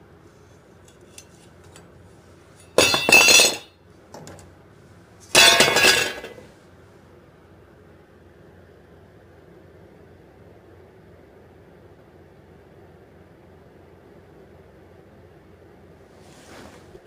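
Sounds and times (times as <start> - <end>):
saw blade clattering on workbench: 2.6 - 3.7, 5.3 - 6.4.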